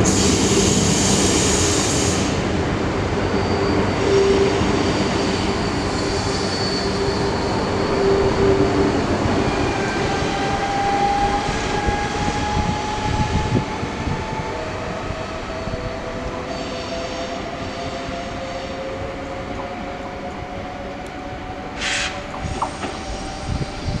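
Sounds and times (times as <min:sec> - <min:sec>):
train rumble: 0:00.0 - 0:24.0
short hiss: 0:21.8 - 0:22.9.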